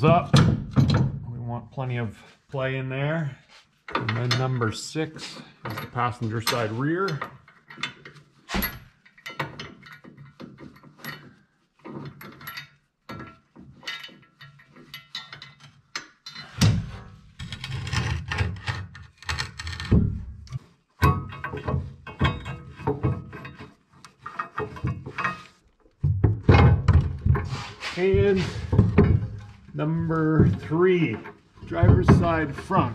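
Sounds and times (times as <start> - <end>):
metal bolts and washers clinking: 3.9 - 20.0, 21.0 - 32.9
heavier thumps: 26.0 - 29.9, 31.7 - 32.9.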